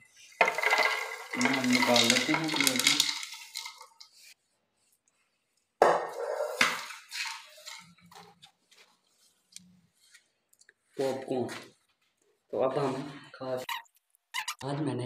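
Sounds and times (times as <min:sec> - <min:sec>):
popcorn rustling: 0:00.0 - 0:04.4, 0:06.6 - 0:10.1.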